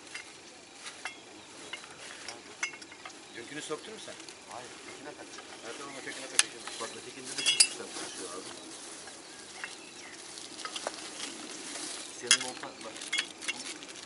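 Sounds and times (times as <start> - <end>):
metallic clinks and rustling: 0.0 - 14.0
plastic bag crinkling: 4.0 - 14.0.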